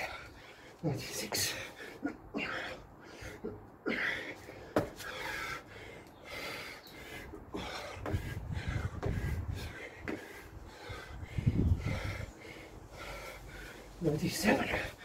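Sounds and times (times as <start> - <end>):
man breathing hard: 0.0 - 14.0
thuds of feet and hands on paving: 4.7 - 5.2, 7.6 - 9.4.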